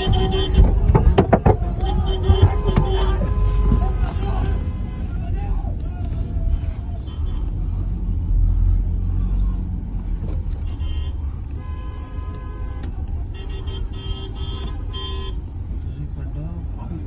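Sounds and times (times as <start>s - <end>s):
car horn blaring: 0.0s - 5.6s, 6.8s - 8.2s, 10.5s - 15.5s
car engine and road rumble: 0.0s - 17.0s.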